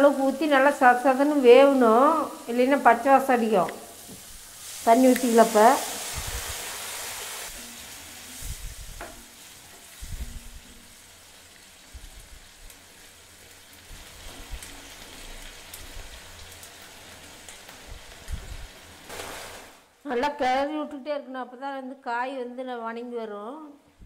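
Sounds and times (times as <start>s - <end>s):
vegetables sizzling in hot oil: 0.0s - 20.0s
spatula stirring in pan: 4.0s - 19.8s.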